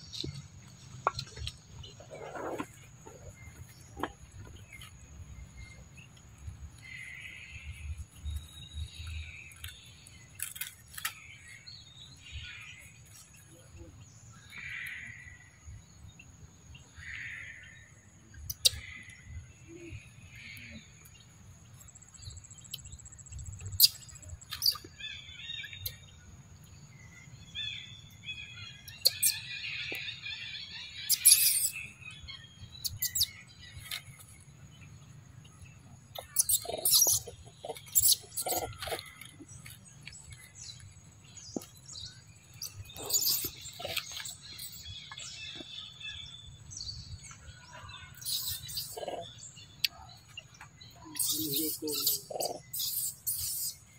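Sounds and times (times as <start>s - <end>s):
high-pitched chirping animal calls: 28.8s - 32.0s, 36.1s - 39.4s, 42.6s - 46.0s, 47.8s - 53.9s.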